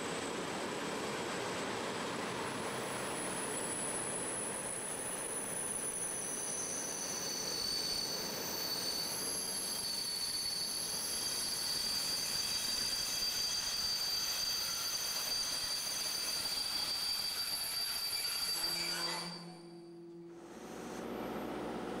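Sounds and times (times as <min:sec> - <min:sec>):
train wheels rolling on rail: 0:00.0 - 0:18.6
high wheel squeal: 0:03.1 - 0:20.1.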